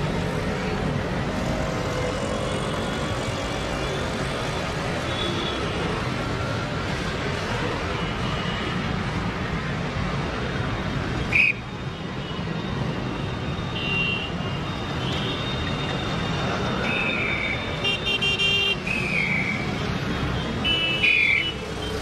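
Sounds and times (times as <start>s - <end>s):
road traffic: 0.0s - 22.0s
vehicle horns honking: 17.8s - 18.9s.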